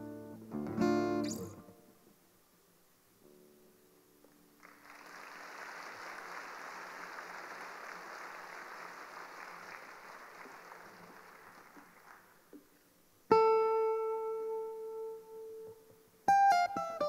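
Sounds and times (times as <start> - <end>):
audience applauding: 4.6 - 12.5.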